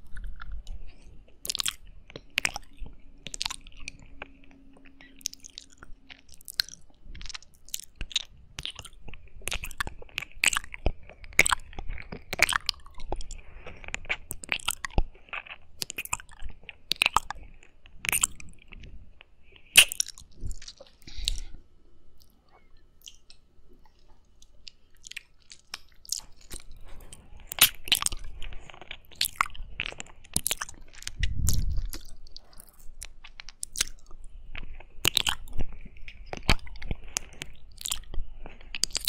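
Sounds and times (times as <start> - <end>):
wet mouth clicks and smacks: 29.1 - 34.1.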